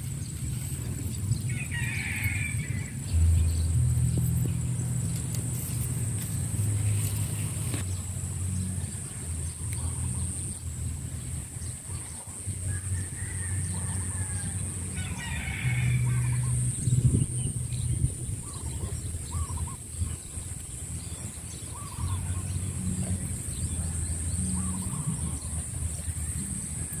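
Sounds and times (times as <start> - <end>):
low rumble: 0.0 - 27.0
rooster crowing: 1.4 - 3.4, 12.6 - 16.9
high-pitched insect drone: 1.7 - 27.0.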